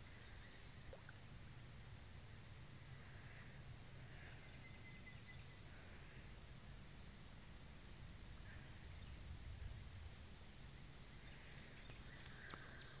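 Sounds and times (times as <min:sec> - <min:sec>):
faint chirps and clicks: 0:00.2 - 0:01.3, 0:11.7 - 0:13.0.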